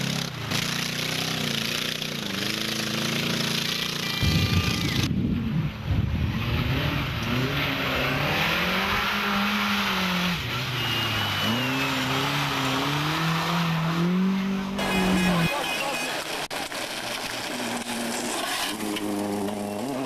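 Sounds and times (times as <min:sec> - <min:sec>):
rally car engine revving: 0:06.1 - 0:20.0
tyre squeal: 0:10.4 - 0:12.7.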